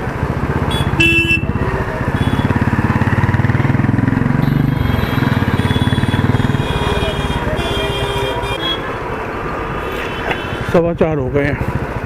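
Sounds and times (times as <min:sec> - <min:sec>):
motorcycle engine revving: 0:00.2 - 0:08.4
vehicle horn beep: 0:00.7 - 0:02.6, 0:04.4 - 0:08.9.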